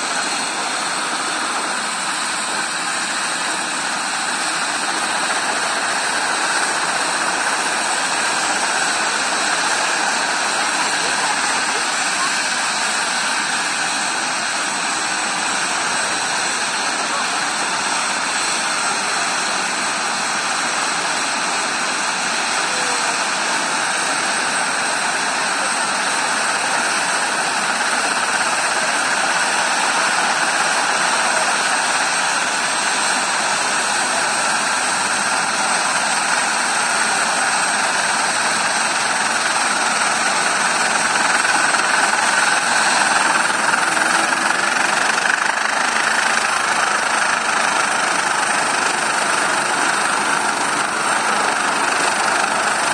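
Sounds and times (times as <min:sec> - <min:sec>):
helicopter turbine whine: 0:00.0 - 0:52.9.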